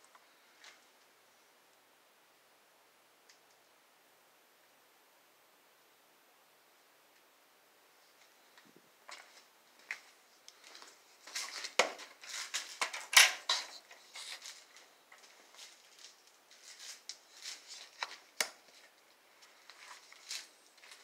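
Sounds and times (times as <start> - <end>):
rustling scrapes: 9.1 - 21.0.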